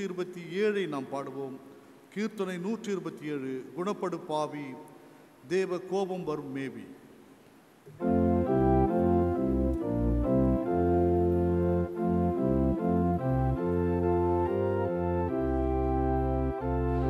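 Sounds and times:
organ chords with bass line: 0:08.0 - 0:17.0.

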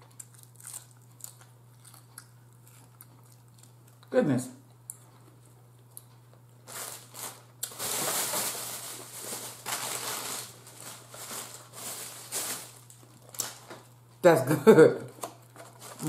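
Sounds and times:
plastic bag rustling: 0:06.6 - 0:13.9, 0:15.6 - 0:16.0.

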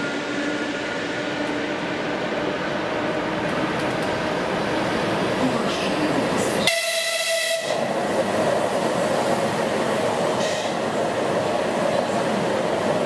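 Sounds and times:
train passing at speed: 0:00.0 - 0:13.0
train horn blast: 0:06.6 - 0:07.9.

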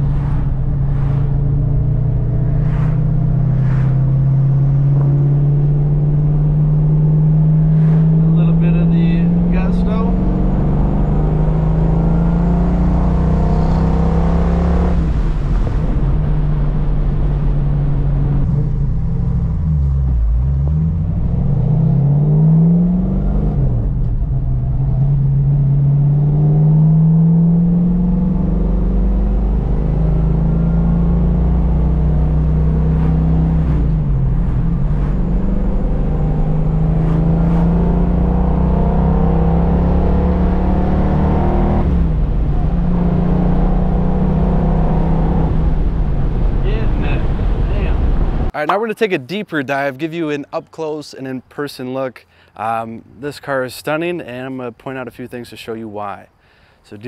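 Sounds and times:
car engine running: 0:29.4 - 0:40.9.

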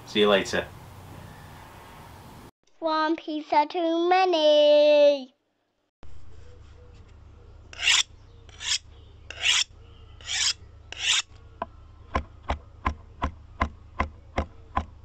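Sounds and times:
rasping strokes: 0:07.7 - 0:11.3.

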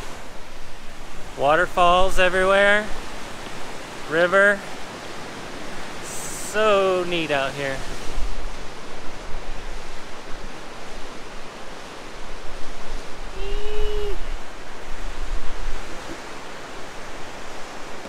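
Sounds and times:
fast water rushing over rocks: 0:00.0 - 0:18.0
wind gusting on microphone: 0:00.0 - 0:18.0.

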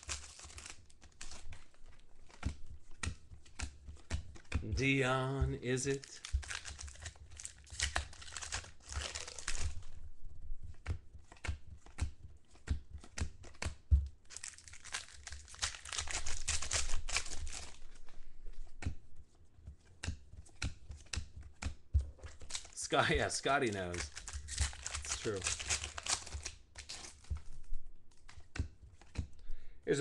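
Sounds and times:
wrappers tearing and crinkling: 0:00.0 - 0:02.0, 0:05.7 - 0:09.9, 0:14.3 - 0:18.0, 0:22.4 - 0:27.5
cards rustling: 0:00.0 - 0:30.0.

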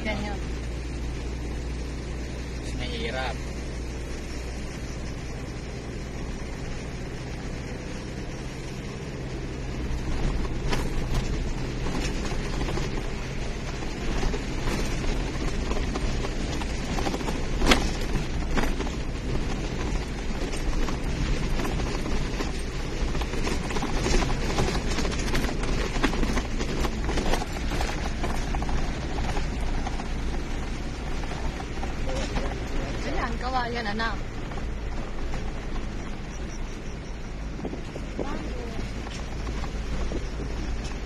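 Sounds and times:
car engine and tyre rumble: 0:00.0 - 0:41.0
knocks and rattles from bumps: 0:09.3 - 0:41.0.

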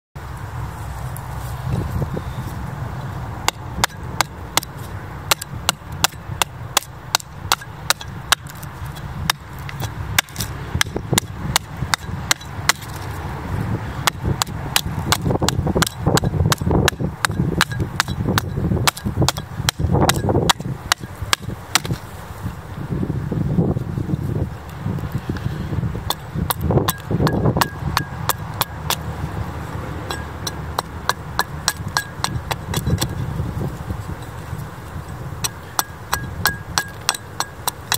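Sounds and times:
axe chopping wood: 0:03.4 - 0:13.1, 0:14.0 - 0:22.1, 0:26.0 - 0:29.1, 0:30.1 - 0:33.1, 0:35.4 - 0:37.9.

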